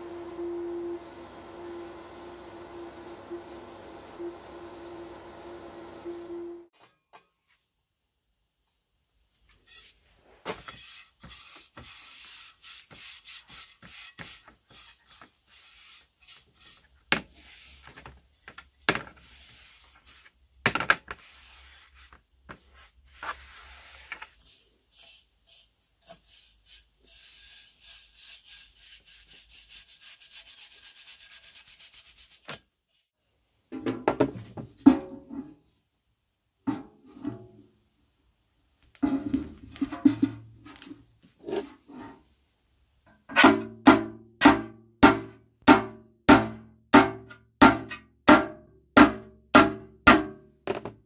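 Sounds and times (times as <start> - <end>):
paint brush scrubbing metal: 10.7 - 17.9, 21.2 - 32.4.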